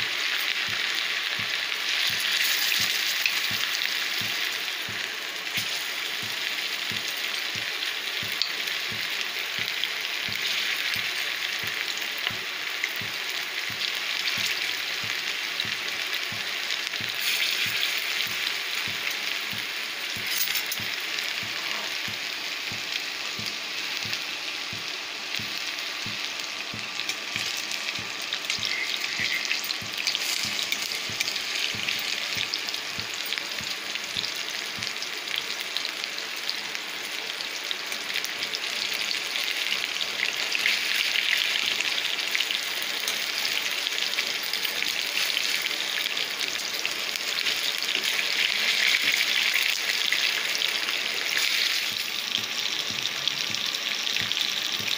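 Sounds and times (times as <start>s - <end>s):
food deep-frying in oil: 0.0s - 54.9s.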